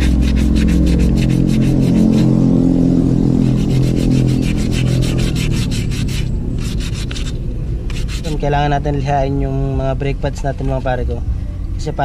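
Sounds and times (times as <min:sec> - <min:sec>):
sandpaper rubbing brake shoes: 0:00.0 - 0:02.2, 0:03.4 - 0:08.4.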